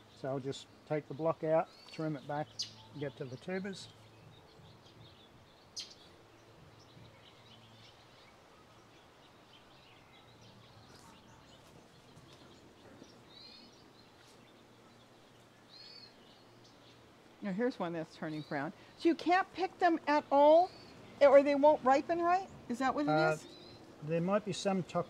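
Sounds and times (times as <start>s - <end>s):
faint bird chirps: 1.1s - 17.0s.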